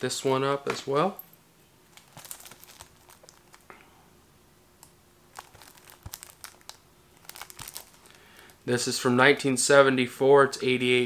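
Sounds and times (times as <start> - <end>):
plastic wrap crinkling: 1.9 - 3.7, 5.3 - 8.6.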